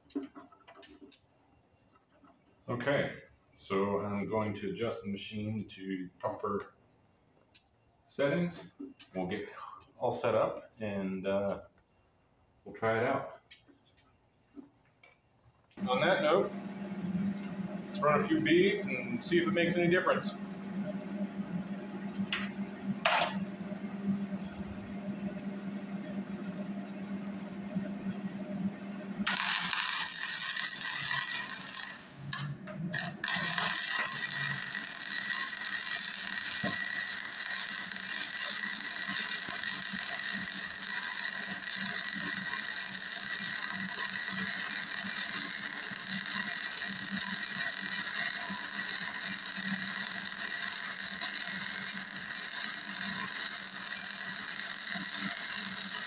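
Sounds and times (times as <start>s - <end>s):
welding arc crackling: 29.2s - 56.0s.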